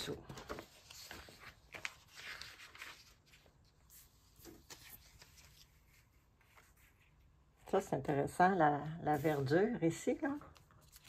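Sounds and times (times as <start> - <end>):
magazine pages rustling: 0.0 - 7.4, 10.5 - 11.0.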